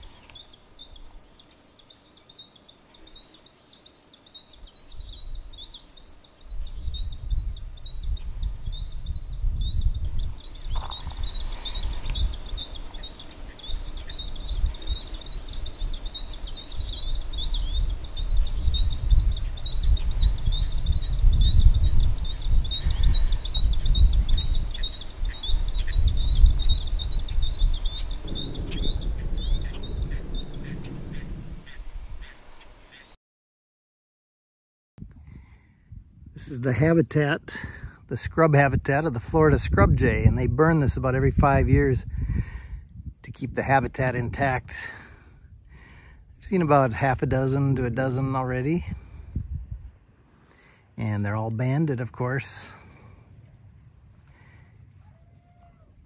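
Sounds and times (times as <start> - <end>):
young birds chirping: 0.0 - 33.2
gusty low rumble: 6.6 - 13.0, 16.8 - 32.3, 39.1 - 43.2, 48.9 - 50.1.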